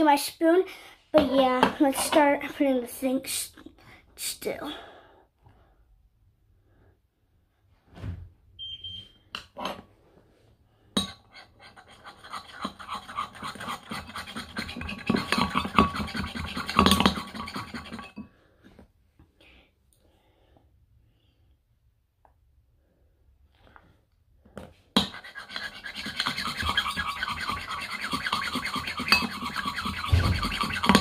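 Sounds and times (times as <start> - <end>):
metal spoon stirring in a bowl: 11.0 - 18.3, 25.0 - 31.0.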